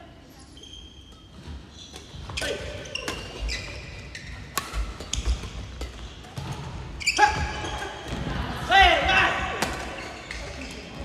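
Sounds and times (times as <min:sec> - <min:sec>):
shoes squeaking on wooden floor: 0:00.6 - 0:05.4
racket hitting shuttlecock: 0:02.0 - 0:08.1, 0:09.5 - 0:10.4.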